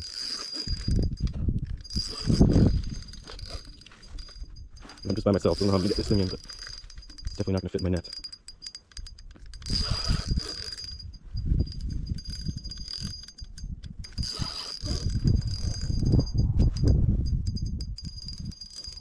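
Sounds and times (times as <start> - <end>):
fishing reel clicking and whirring: 0.0 - 19.0.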